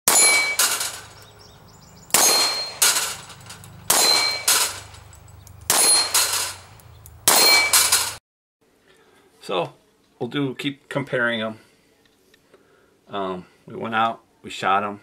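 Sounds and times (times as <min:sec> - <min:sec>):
steel target clanging: 0:00.1 - 0:01.2, 0:02.0 - 0:06.7, 0:07.3 - 0:08.2
pistol shots: 0:02.1 - 0:05.0, 0:05.7 - 0:08.2.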